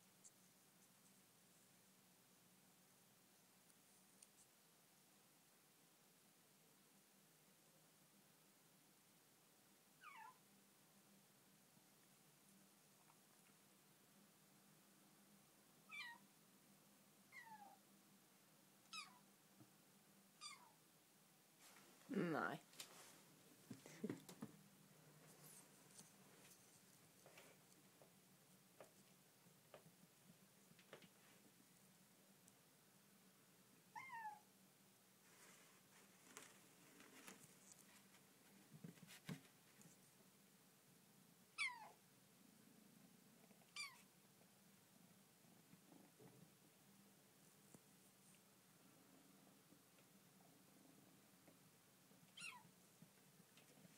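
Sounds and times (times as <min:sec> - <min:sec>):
kitten squeaky meows: 0:10.0 - 0:10.4, 0:15.9 - 0:16.2, 0:17.3 - 0:17.8, 0:18.9 - 0:19.2, 0:20.4 - 0:20.8, 0:34.0 - 0:34.4, 0:41.6 - 0:42.0, 0:43.7 - 0:44.1, 0:52.3 - 0:52.7.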